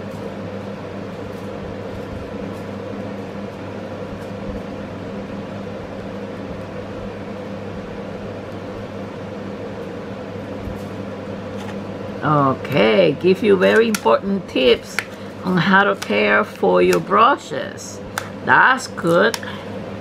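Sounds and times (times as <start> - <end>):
steady machine hum: 0.0 - 20.0.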